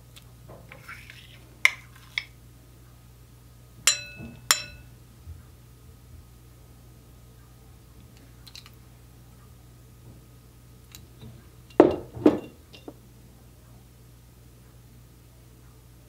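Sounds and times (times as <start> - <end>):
faint clinks of ladle: 3.9 - 4.9.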